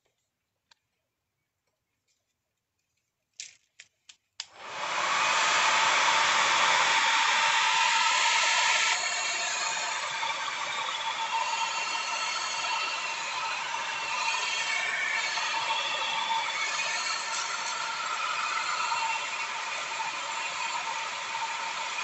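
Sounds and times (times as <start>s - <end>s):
electric dryer blowing: 4.5s - 22.0s.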